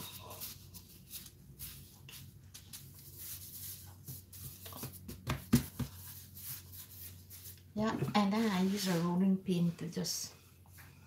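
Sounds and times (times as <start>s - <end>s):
hands patting dough: 0.0s - 8.6s.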